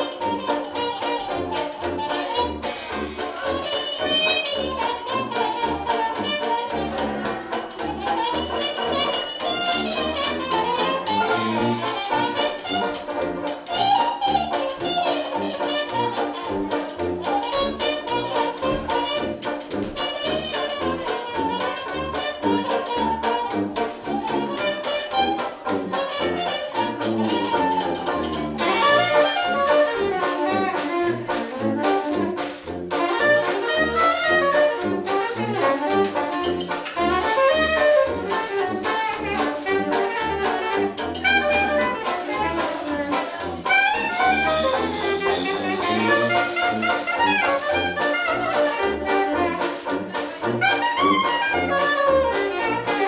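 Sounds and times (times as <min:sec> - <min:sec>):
sousaphone bass line: 0:00.0 - 0:20.0, 0:21.0 - 0:31.4
banjo: 0:00.0 - 0:53.0
clarinet melody: 0:00.0 - 0:53.0
trumpet melody: 0:00.0 - 0:53.0
washboard beat: 0:00.0 - 0:53.0.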